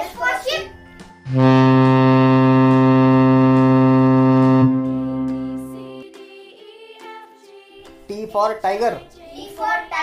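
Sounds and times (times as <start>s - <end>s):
ship's horn low blast: 1.3s - 6.0s.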